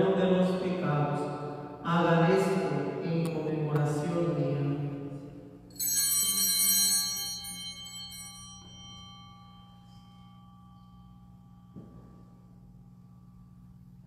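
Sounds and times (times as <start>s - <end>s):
altar bell ringing: 5.7s - 14.0s.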